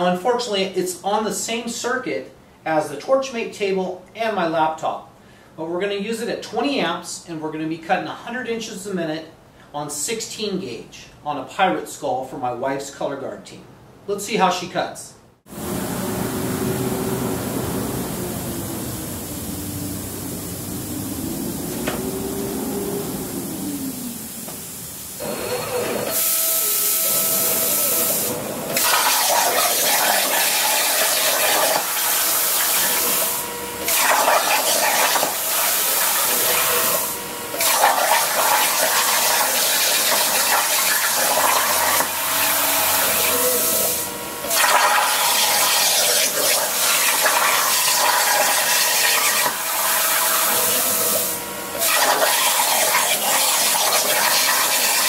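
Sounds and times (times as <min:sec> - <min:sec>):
plasma cutter hissing: 0:17.8 - 0:55.0.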